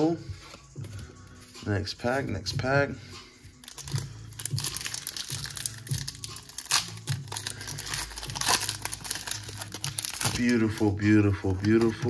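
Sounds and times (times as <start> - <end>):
foil wrapper crinkling and tearing: 3.6 - 12.0.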